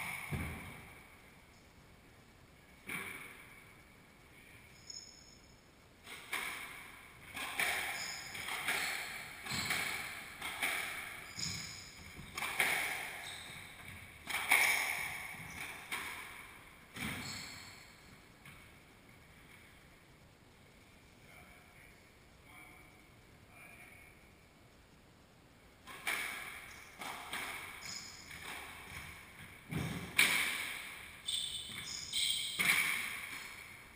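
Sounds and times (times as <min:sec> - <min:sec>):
squash ball hitting rackets and walls: 0:00.0 - 0:01.1, 0:02.8 - 0:03.6, 0:06.0 - 0:18.7, 0:25.8 - 0:33.9
shoe squeaks on wooden floor: 0:07.6 - 0:09.7, 0:11.2 - 0:12.3, 0:13.1 - 0:13.8, 0:17.1 - 0:17.9, 0:27.8 - 0:28.4, 0:31.2 - 0:32.8.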